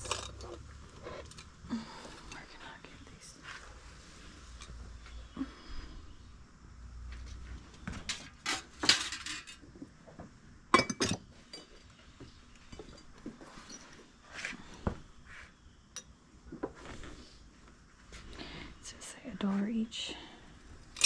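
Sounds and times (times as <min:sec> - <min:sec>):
glass stems clinking: 0:10.7 - 0:12.0.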